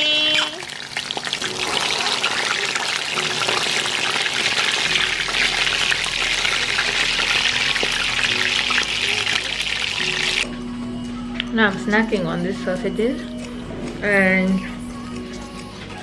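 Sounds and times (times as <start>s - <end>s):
sausages sizzling in oil: 0.0s - 10.4s.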